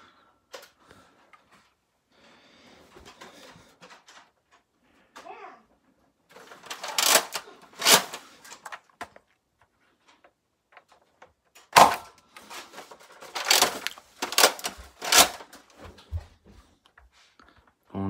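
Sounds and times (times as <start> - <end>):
sharp crack: 6.6 - 8.2, 11.7 - 12.2.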